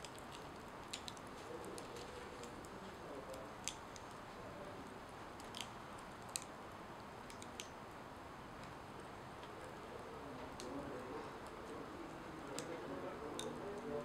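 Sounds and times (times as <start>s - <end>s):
smouldering tortilla crackling ticks: 0.0s - 14.0s
steady low hiss: 0.0s - 14.0s.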